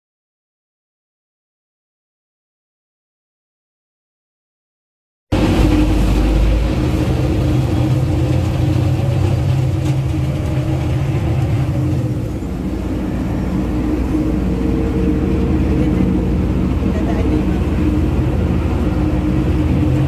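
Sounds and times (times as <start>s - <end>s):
boat engine droning: 5.3s - 20.0s
choppy water: 5.3s - 20.0s
wind rushing: 5.3s - 20.0s.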